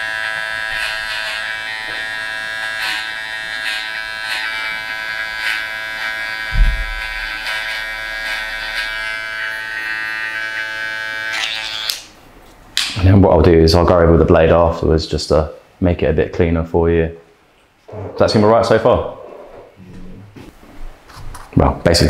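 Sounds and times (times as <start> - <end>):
hair trimmer whining: 0.0 - 12.1
low thump: 6.5 - 7.0.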